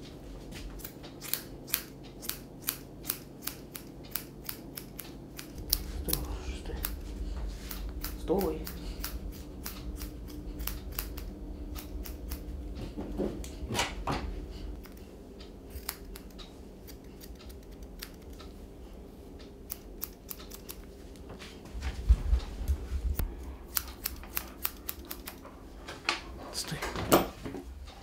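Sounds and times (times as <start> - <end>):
scissors snipping hair: 0.8 - 7.0, 7.6 - 12.5, 14.7 - 15.0, 15.7 - 18.6, 19.6 - 20.9, 23.7 - 25.4
dull low knocks: 5.5 - 15.7, 21.8 - 23.7.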